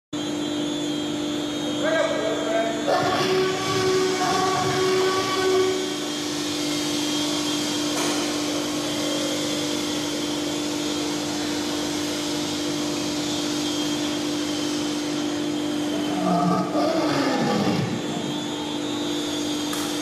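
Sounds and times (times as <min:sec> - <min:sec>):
constant whine: 0:00.2 - 0:20.0
mechanical hum and hiss: 0:00.2 - 0:20.0.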